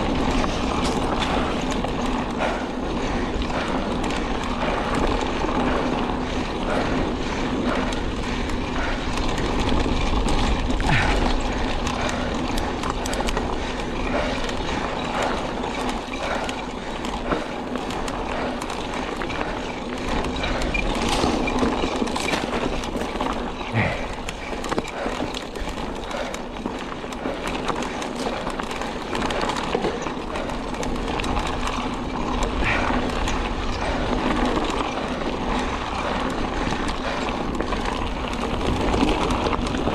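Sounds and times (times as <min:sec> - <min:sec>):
bike clicking and rattling: 0:00.0 - 0:39.9
tyres crunching on gravel: 0:09.6 - 0:39.9.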